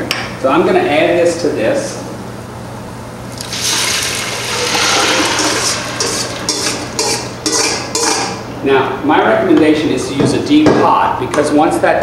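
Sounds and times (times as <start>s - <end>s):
tomatoes hissing in hot oil: 3.3s - 7.3s
spoon scraping a bowl: 4.6s - 8.4s.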